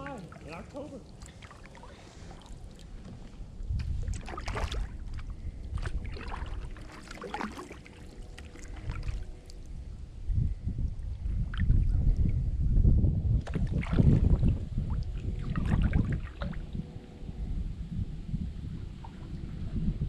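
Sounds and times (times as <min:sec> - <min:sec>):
wind rumble on microphone: 0:00.0 - 0:20.0
paddle strokes splashing in water: 0:00.1 - 0:03.2, 0:03.9 - 0:09.7.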